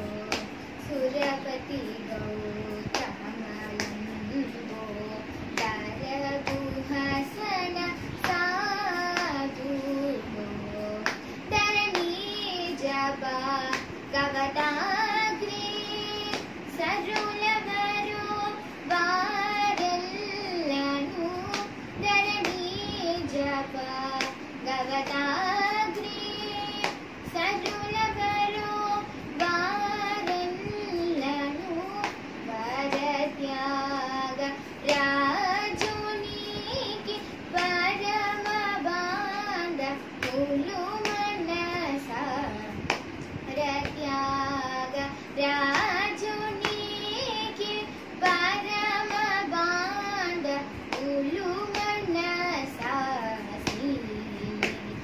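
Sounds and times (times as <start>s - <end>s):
girl singing: 0.0s - 55.0s.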